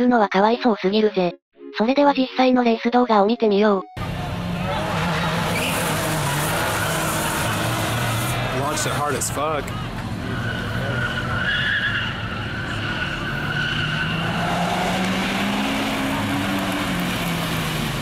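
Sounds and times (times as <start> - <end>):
car engine accelerating: 4.0 - 18.0
tyres squealing: 4.6 - 17.1.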